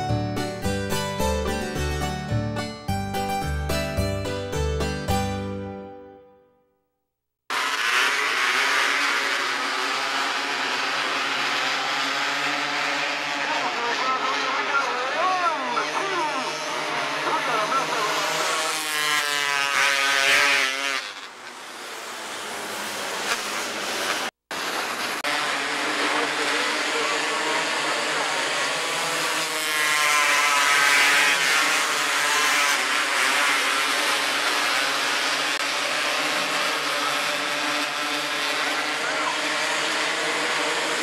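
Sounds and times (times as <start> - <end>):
racing car engines passing: 7.6 - 19.1, 20.5 - 41.0.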